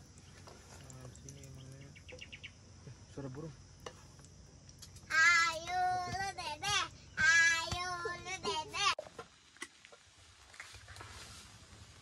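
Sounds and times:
child singing loudly: 5.1s - 9.0s.

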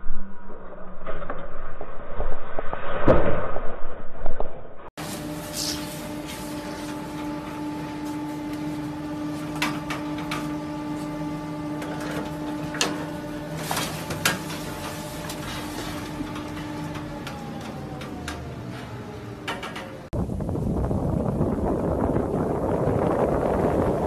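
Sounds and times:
chairlift machinery humming: 5.0s - 20.2s.

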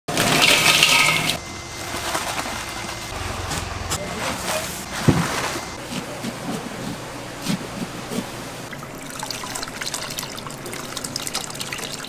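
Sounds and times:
street background noise: 1.4s - 7.6s
indistinct voices: 2.4s - 5.8s.

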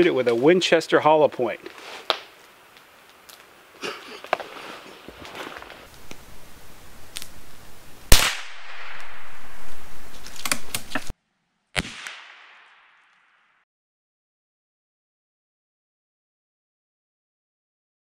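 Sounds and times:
rifle shot crack with echo: 8.1s - 10.1s, 11.8s - 13.5s.

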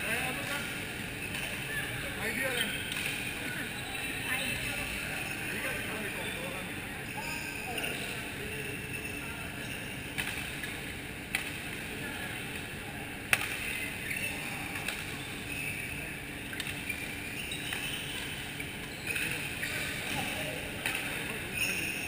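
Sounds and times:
busy sports hall noise: 0.0s - 22.0s
rackets striking shuttlecock: 2.9s - 3.3s, 10.1s - 11.8s, 13.3s - 13.8s, 16.5s - 17.0s, 20.8s - 21.4s.

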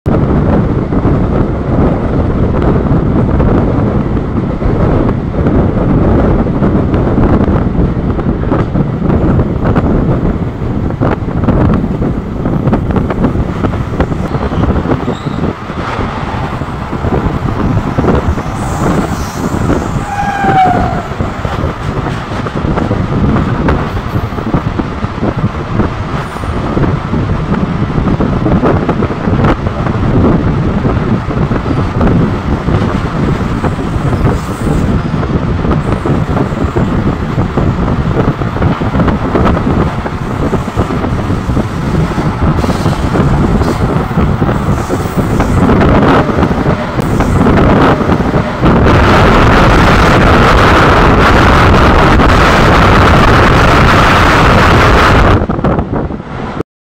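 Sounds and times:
wind: 0.0s - 56.6s
goods train passing alongside: 0.1s - 56.6s
train wheels clattering on rails: 11.0s - 54.1s
high squeal sliding down: 14.3s - 15.5s, 18.0s - 21.2s.

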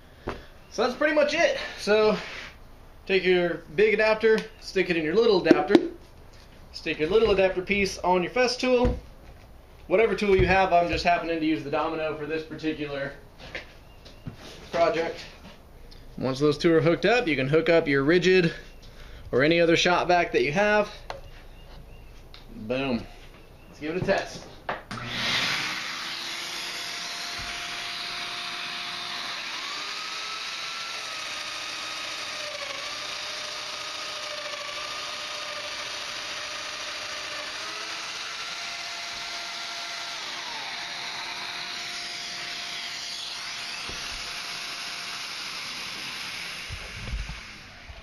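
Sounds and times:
shop vac air rush: 1.6s - 2.6s
joiner motor whine: 24.9s - 48.0s.

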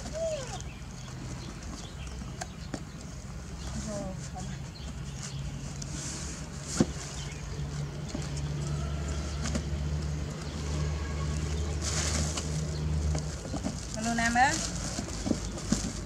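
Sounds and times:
plastic rustle: 10.6s - 16.0s.

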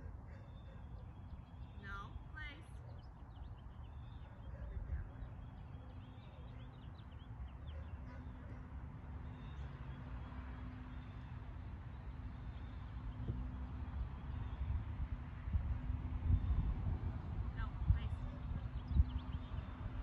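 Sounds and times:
small birds chirping: 0.0s - 15.1s, 17.5s - 20.0s
constant low rumble: 13.1s - 20.0s.

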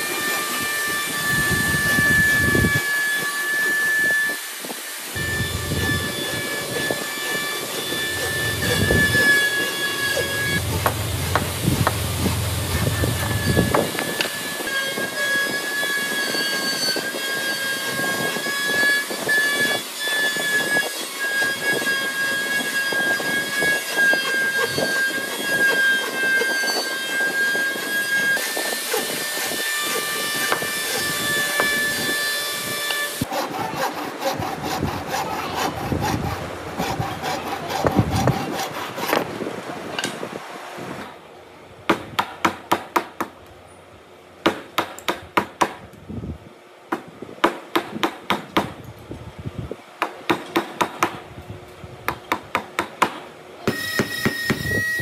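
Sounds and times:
hand saw cutting wood: 5.1s - 15.5s, 16.7s - 39.4s
high ringing tone: 5.2s - 18.2s, 53.7s - 55.0s.

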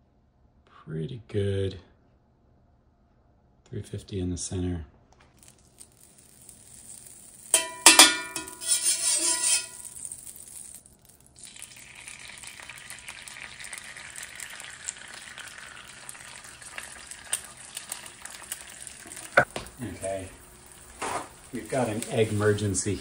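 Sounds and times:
egg sizzling in a skillet: 5.3s - 23.0s
ringing clinks: 6.8s - 10.8s.

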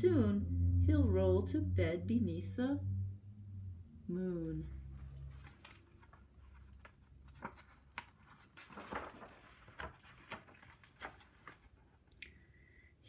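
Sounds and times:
book page turning: 4.8s - 12.1s.

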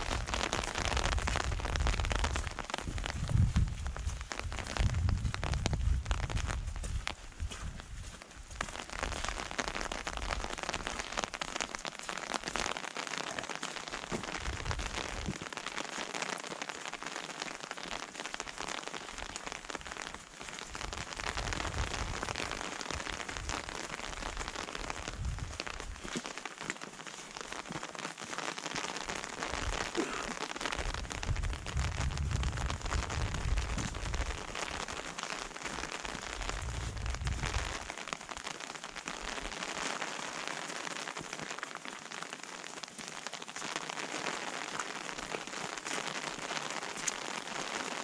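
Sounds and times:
rain hissing on foliage: 0.0s - 48.0s
low rumbles: 1.1s - 6.8s, 31.1s - 34.4s, 36.4s - 37.8s.

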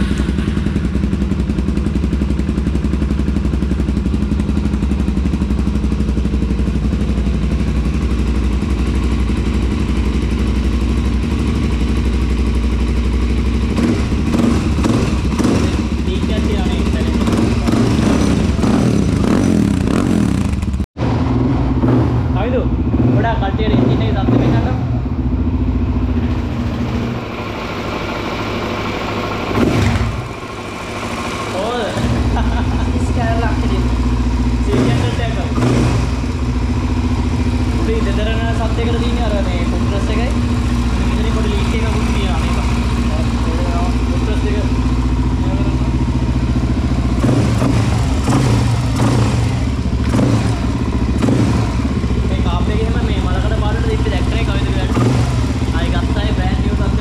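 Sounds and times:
motorcycle engine idling: 0.0s - 57.0s.

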